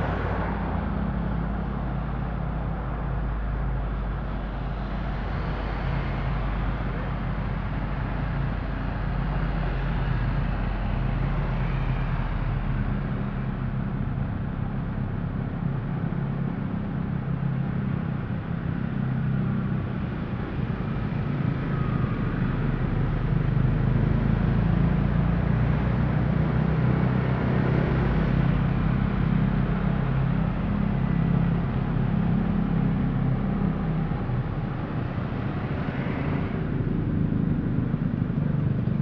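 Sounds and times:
motorbikes: 0.0 - 39.0
vehicle engine hum and road noise: 0.0 - 39.0.

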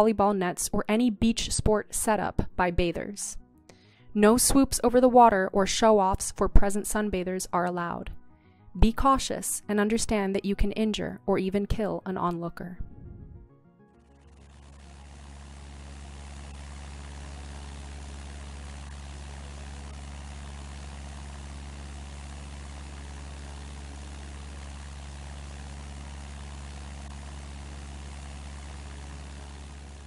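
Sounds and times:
low engine drone: 12.8 - 30.0.

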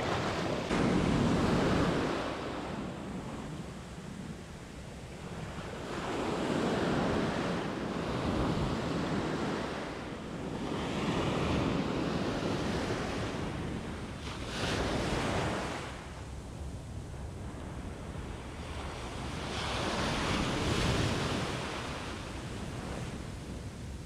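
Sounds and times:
wave breaking close by: 0.0 - 3.8
ocean surf washing in: 0.0 - 16.2.

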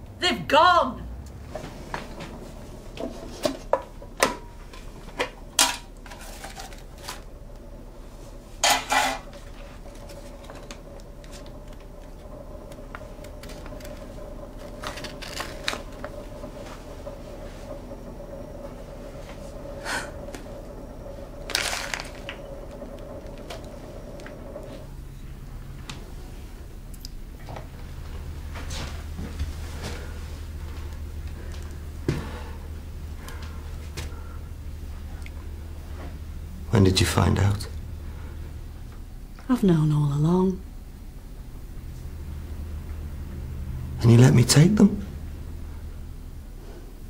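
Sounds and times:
steady hum: 0.0 - 47.0
paper envelope rustling: 21.5 - 22.3.

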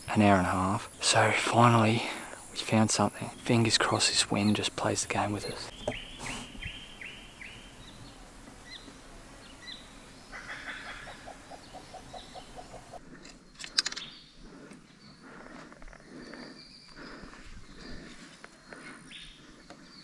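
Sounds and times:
bird chirps: 3.2 - 15.2.

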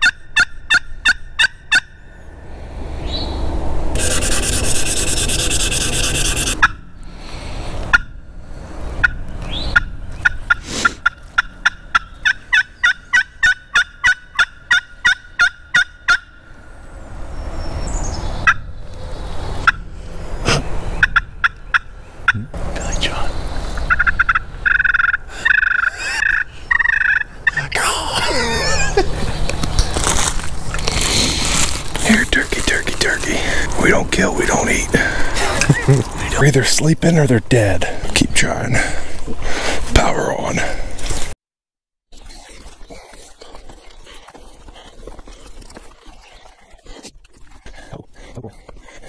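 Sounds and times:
wooden turkey call notes: 0.0 - 2.0, 9.0 - 16.4, 23.8 - 27.7.

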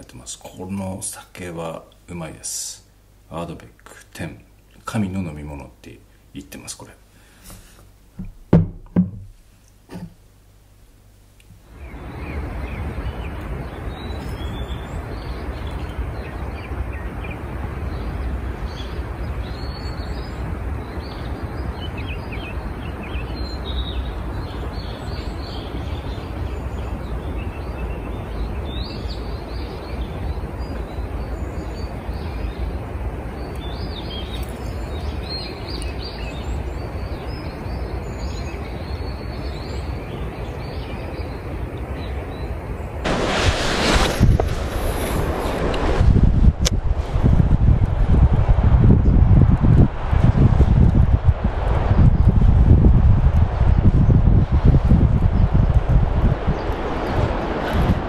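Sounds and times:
songbirds chirping: 0.0 - 8.8, 9.5 - 45.8
low rumble: 43.0 - 58.0
steady outdoor rushing: 43.0 - 58.0.

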